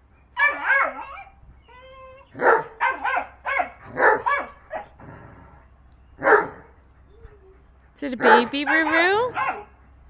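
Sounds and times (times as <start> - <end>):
puppy yapping play barks: 0.4 - 1.2, 2.4 - 4.8, 8.2 - 9.7
puppy whining: 0.4 - 3.2, 6.2 - 9.6.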